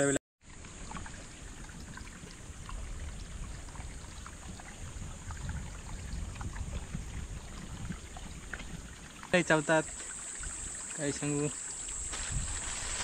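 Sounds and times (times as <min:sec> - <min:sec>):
high insect drone: 0:09.4 - 0:13.0.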